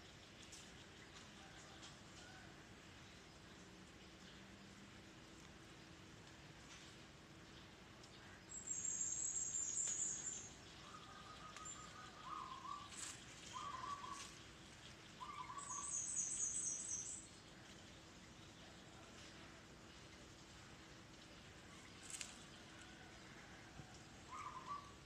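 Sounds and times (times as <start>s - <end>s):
birds twittering trill: 7.2s - 19.2s, 19.8s - 25.0s
lower trilled bird phrases: 8.6s - 14.5s, 15.2s - 17.3s.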